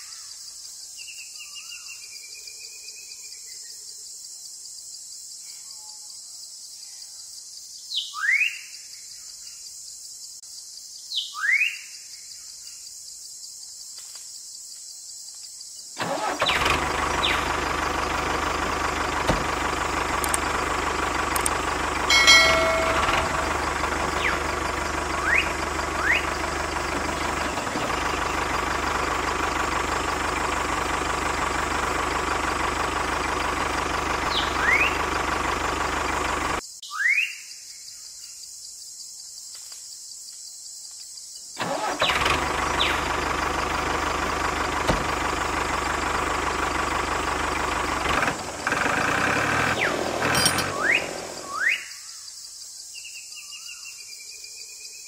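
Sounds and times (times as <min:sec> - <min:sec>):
insect hiss: 0:00.0 - 0:16.0, 0:36.6 - 0:41.7, 0:50.9 - 0:55.0
engine running: 0:16.0 - 0:36.6, 0:41.6 - 0:51.6
rising bird chirps: 0:20.4 - 0:28.5, 0:50.7 - 0:52.1.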